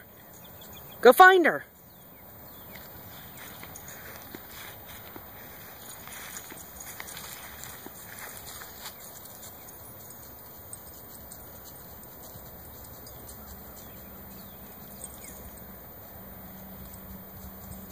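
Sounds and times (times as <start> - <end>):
outdoor background noise: 0.0 - 17.9
footsteps on dry leaves: 2.6 - 10.0.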